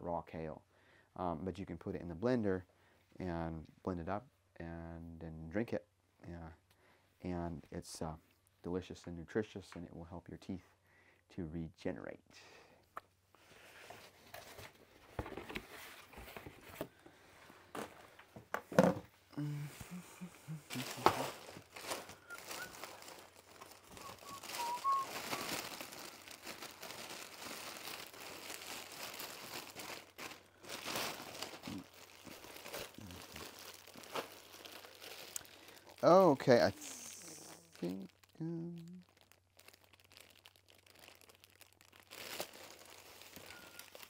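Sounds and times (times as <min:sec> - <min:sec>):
cardboard rustling: 0:13.6 - 0:19.0, 0:20.7 - 0:35.3
plastic packaging crinkling: 0:20.7 - 0:44.0.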